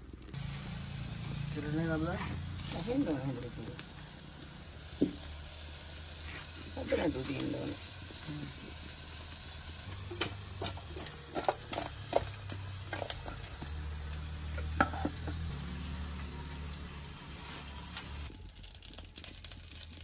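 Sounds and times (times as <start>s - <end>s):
steady sizzling hiss: 0.0s - 20.0s
fish clattering in a steel bowl: 10.1s - 13.8s.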